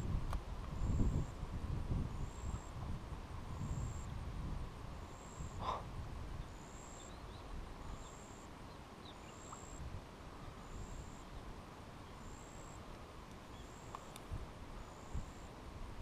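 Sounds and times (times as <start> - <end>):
wind buffeting microphone: 0.0 - 6.5
faint chirps: 6.4 - 9.8.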